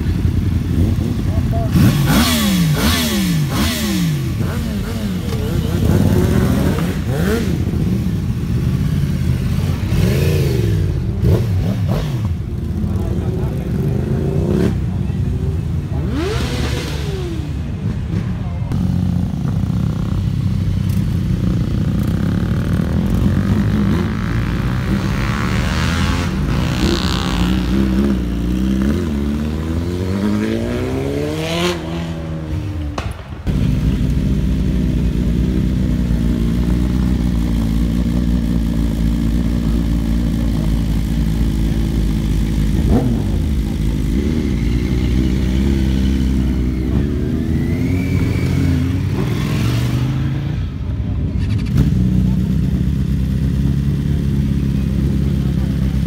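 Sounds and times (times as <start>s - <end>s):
motorcycles idling: 0.0s - 25.4s, 33.0s - 56.0s
motorcycles riding past: 0.0s - 56.0s.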